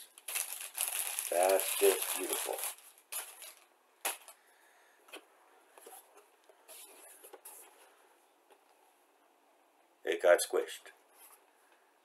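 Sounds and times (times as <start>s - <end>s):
soft scrapes and rustles: 5.7s - 8.1s.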